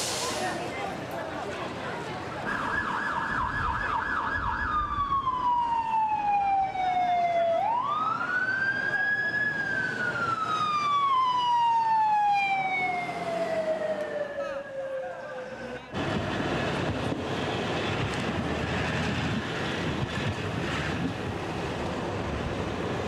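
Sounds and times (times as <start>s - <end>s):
emergency vehicle siren: 2.3s - 20.4s.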